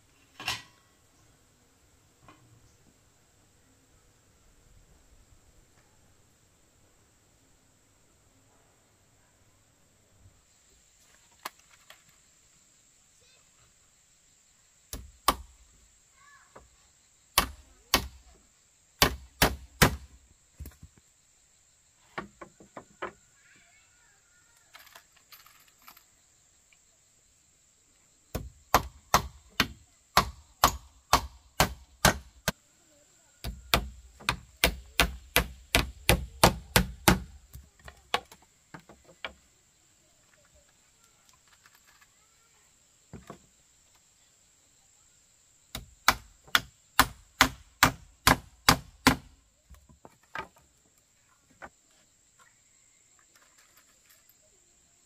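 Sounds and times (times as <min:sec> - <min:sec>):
hammer striking nails into wood: 0:17.4 - 0:18.2, 0:19.0 - 0:20.1, 0:28.4 - 0:32.3, 0:33.4 - 0:37.4, 0:45.7 - 0:49.3.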